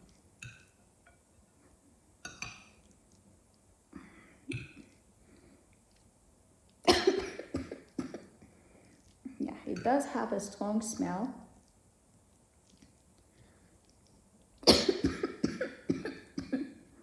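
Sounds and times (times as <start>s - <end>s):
person coughing: 6.9s - 8.3s, 14.6s - 16.8s.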